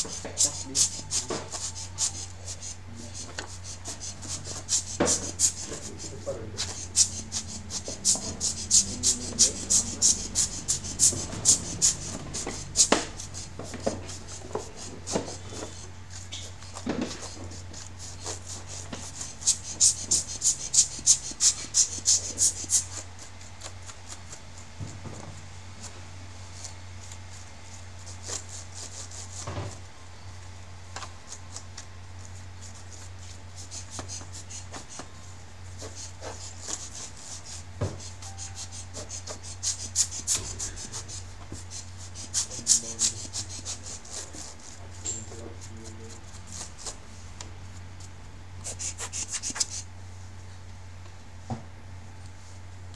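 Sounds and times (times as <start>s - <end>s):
brush scrubbing keyboard keys: 0.0s - 15.8s
steady low hum: 0.0s - 52.9s.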